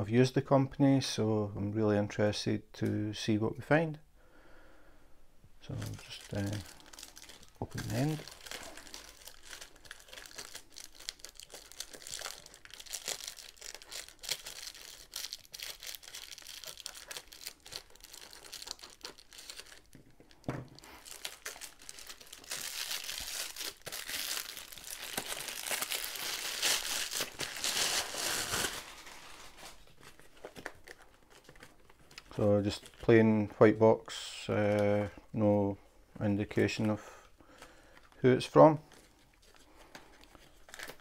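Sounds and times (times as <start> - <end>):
plastic bag crinkling and tearing: 5.6 - 33.1, 38.9 - 41.0
plastic rustling: 5.6 - 33.2, 38.8 - 41.0.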